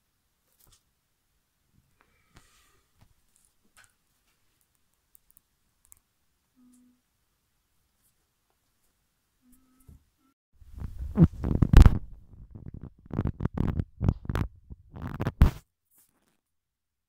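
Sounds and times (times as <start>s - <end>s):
rumbling and bumping on microphone: 10.6s - 15.6s.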